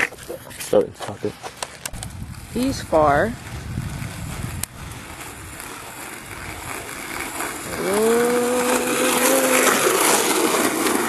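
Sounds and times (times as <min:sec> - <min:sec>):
skateboard wheels rolling on pavement: 0:00.0 - 0:11.0
drawn-out vocal call: 0:07.6 - 0:10.5.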